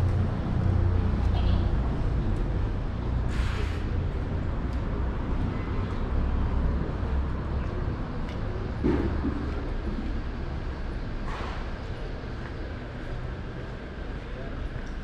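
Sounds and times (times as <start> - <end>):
road traffic rumble: 0.0 - 15.0
short hiss: 3.3 - 3.9.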